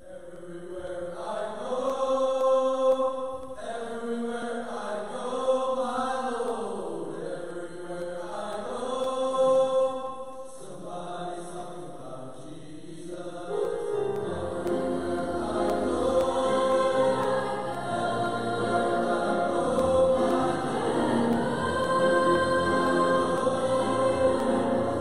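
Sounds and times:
choir singing held chords: 0.0 - 25.0.

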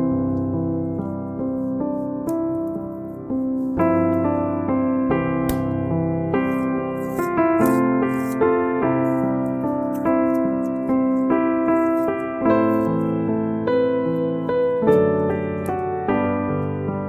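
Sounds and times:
slow keyboard melody: 0.0 - 17.0.

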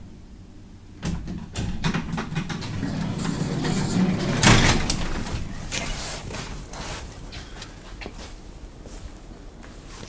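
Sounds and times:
elevator door bang: 1.0 - 5.5
elevator doors clattering: 1.0 - 5.7.

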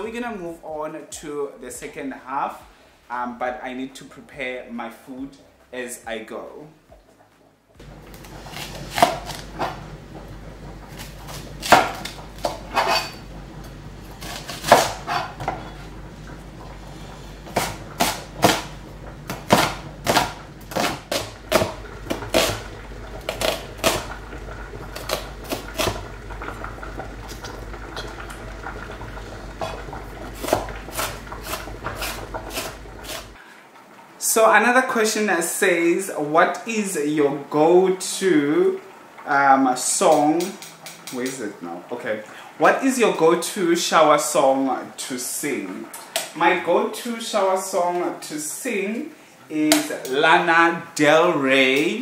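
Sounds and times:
knife chopping on cutting board: 8.5 - 9.7, 14.2 - 15.6, 17.5 - 18.7, 19.3 - 22.6, 30.4 - 33.3.

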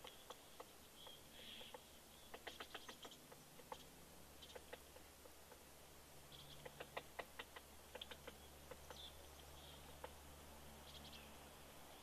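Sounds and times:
woodpecker tapping: 0.0 - 5.7, 6.3 - 10.2.

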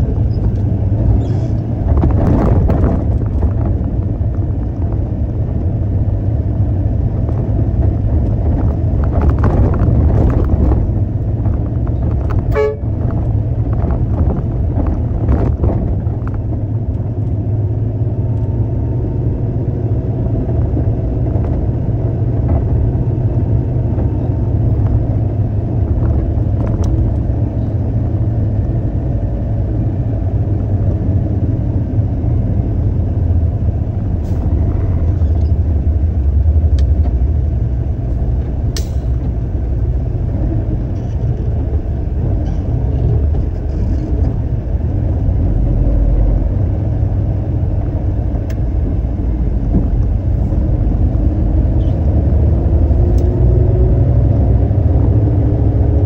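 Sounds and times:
diesel engine rumbling: 0.0 - 56.0.

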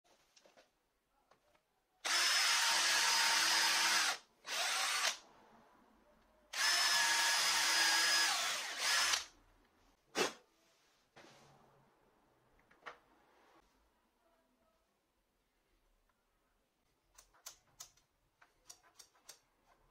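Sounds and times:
electric drill boring into wood: 2.0 - 5.2, 6.6 - 9.3.

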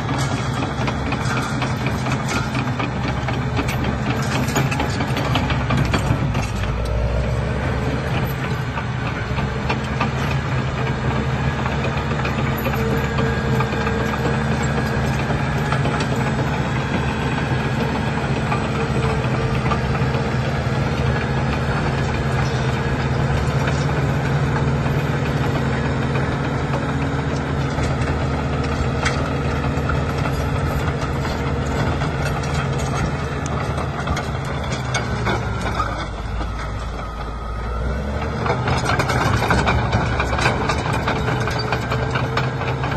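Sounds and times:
diesel engine running: 0.0 - 42.9
steel tracks clattering: 8.0 - 37.4, 38.4 - 42.9.

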